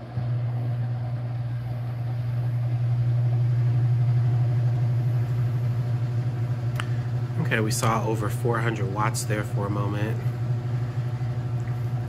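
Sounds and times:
washing machine motor humming: 0.0s - 12.0s.

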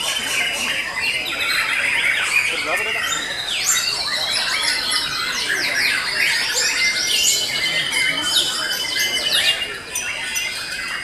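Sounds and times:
songbirds singing: 0.0s - 11.0s.

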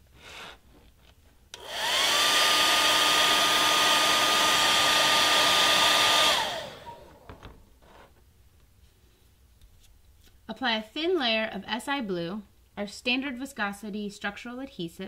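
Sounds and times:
hair dryer running: 1.6s - 7.6s.

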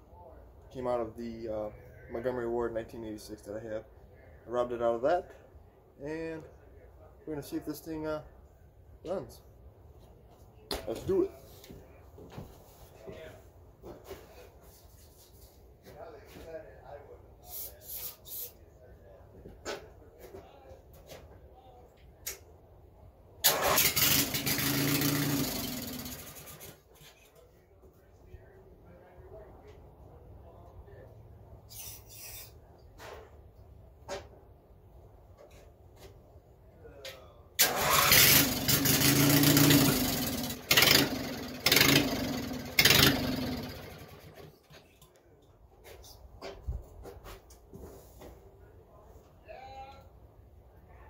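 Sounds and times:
mower engine starting and running: 23.4s - 26.8s, 37.6s - 44.7s.

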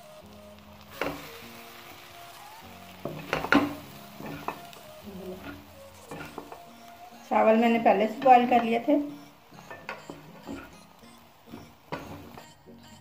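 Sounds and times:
low sizzle: 0.0s - 13.0s
spatula scraping metal pan: 3.0s - 6.8s, 7.7s - 12.6s.

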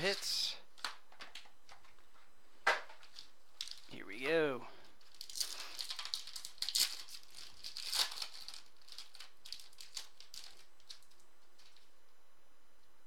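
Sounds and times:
foil wrapper tearing and crinkling: 3.0s - 3.9s, 5.0s - 11.9s.

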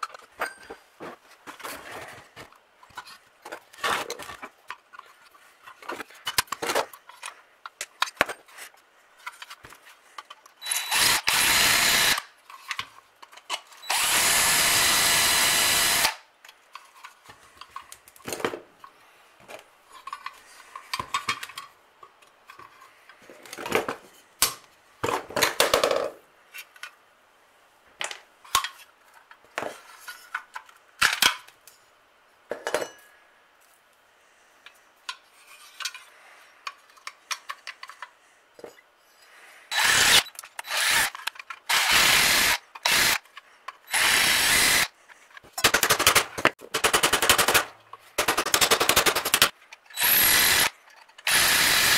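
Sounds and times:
cordless drill running: 10.6s - 12.2s, 13.8s - 16.2s, 39.7s - 41.1s, 41.7s - 43.2s, 43.9s - 44.9s, 50.0s - 50.7s, 51.3s - 51.9s.

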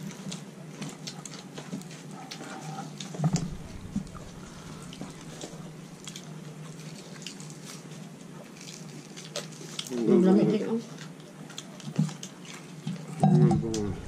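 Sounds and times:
chewing and lip smacking: 0.0s - 10.1s, 10.9s - 14.0s
steady low hum: 3.1s - 6.9s, 13.5s - 14.0s
loud thump: 3.3s - 6.0s, 13.6s - 14.0s.

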